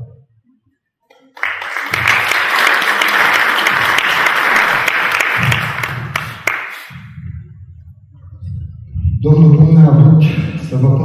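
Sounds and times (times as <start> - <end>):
audience applauding: 1.3 - 6.9.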